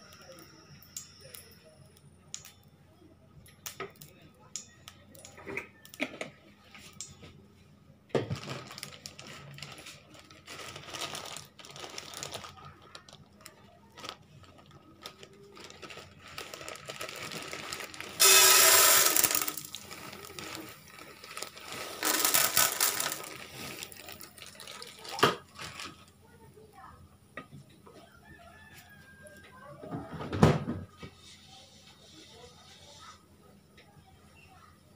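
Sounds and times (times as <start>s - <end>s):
popcorn kernels rattling in pan: 8.3s - 26.2s
handling noise: 15.2s - 24.5s.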